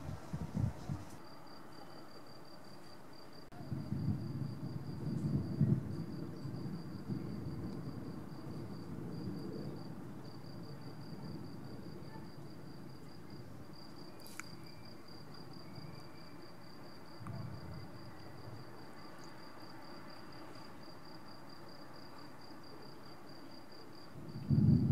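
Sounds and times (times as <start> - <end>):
cricket chirping: 0.5 - 24.9
thunder rumbling: 3.5 - 14.1, 14.8 - 21.8, 24.0 - 24.9.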